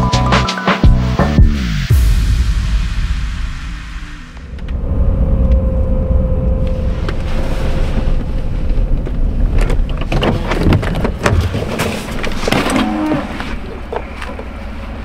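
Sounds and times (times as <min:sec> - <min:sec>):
low road rumble: 0:01.0 - 0:15.0
gravel crackling under tyres: 0:06.6 - 0:15.0.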